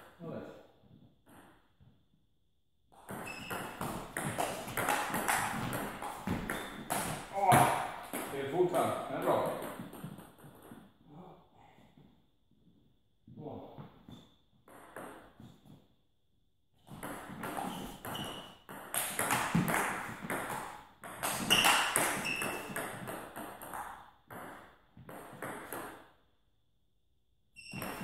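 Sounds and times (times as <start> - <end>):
table tennis rally: 2.9 - 11.0, 14.1 - 15.8, 16.9 - 26.1, 27.6 - 28.0.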